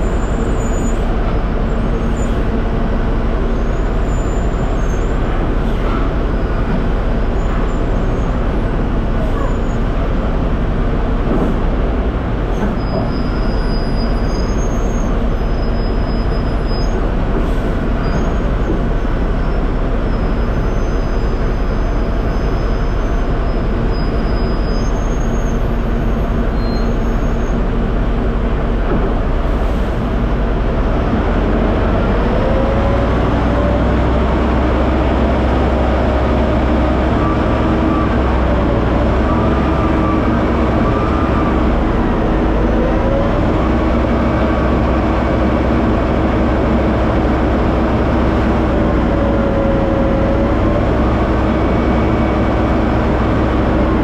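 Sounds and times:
crane engine rumbling: 0.0 - 54.0
deeper drone: 25.6 - 54.0.

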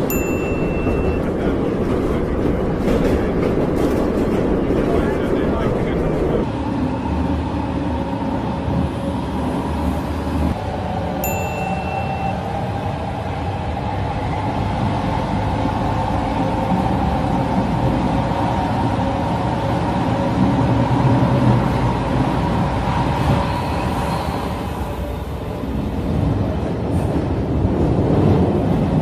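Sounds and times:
subway train rumbling: 0.0 - 29.0.

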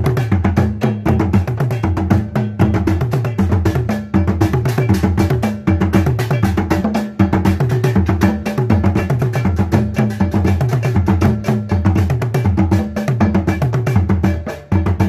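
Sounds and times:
drum ensemble playing fast rhythm: 0.0 - 15.0.

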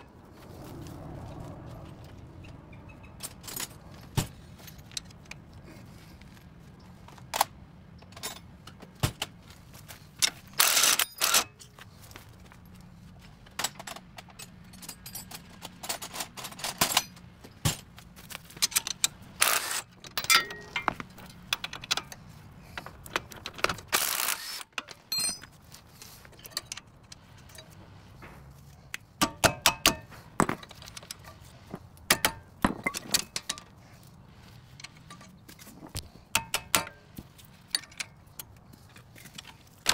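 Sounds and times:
metal tools clinking: 2.4 - 5.5, 13.6 - 17.3, 18.5 - 28.3, 29.3 - 39.9.

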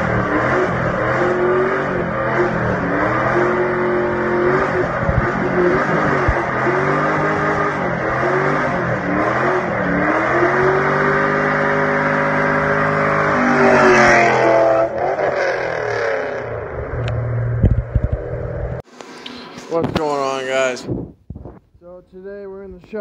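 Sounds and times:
car engine revving hard: 0.0 - 17.6.

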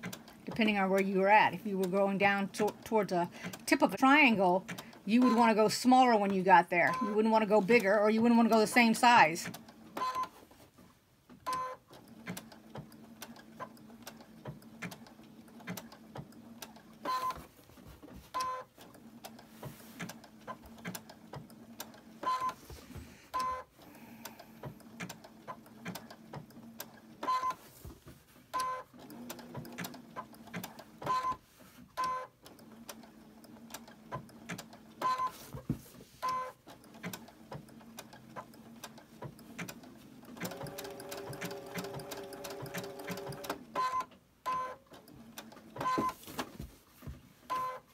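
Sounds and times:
sewing machine needle clicking: 0.0 - 1.0, 1.8 - 7.1, 8.5 - 10.3, 11.4 - 17.4, 18.4 - 22.6, 23.4 - 27.6, 28.6 - 31.4, 32.0 - 35.3, 36.2 - 46.0
sewing machine motor hum: 11.4 - 27.8, 28.4 - 35.4, 36.2 - 46.2.

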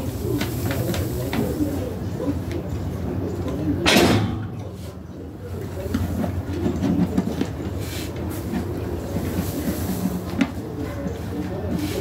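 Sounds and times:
manure fork scooping wood shavings: 7.2 - 12.0.

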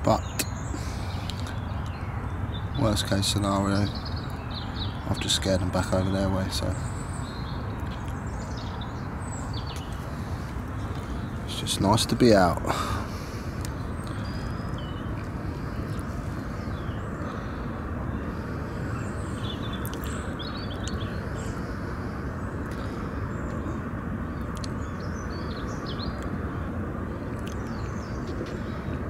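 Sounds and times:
low outdoor rumble: 0.0 - 29.0
small birds chirping: 0.0 - 29.0.

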